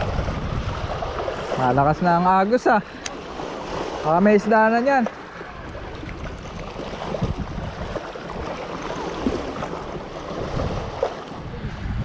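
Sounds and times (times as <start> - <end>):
wind rumble on microphone: 0.0 - 2.2, 5.5 - 12.0
water lapping against rocks: 0.0 - 11.6
water gurgles and splashes: 0.0 - 12.0.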